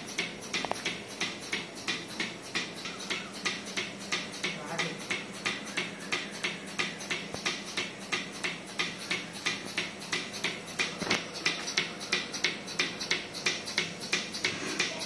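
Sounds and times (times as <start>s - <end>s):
milking pulsator clicking and hissing: 0.0s - 15.0s.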